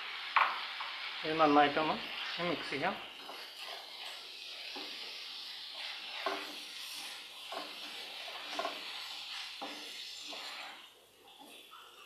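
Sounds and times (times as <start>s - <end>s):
tomatoes sizzling in a pan: 0.0s - 12.0s
wooden spatula scraping a pan: 2.0s - 11.6s.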